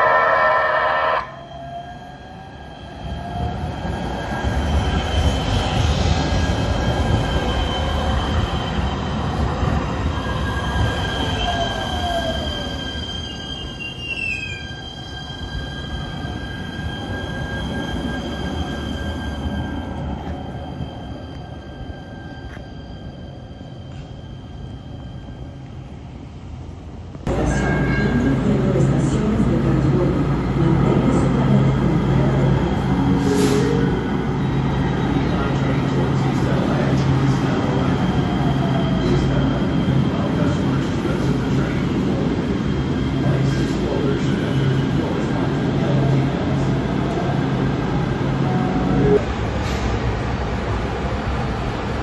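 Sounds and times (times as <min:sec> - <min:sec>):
train horn blast: 0:00.0 - 0:01.4
wheel squeal: 0:10.2 - 0:25.0.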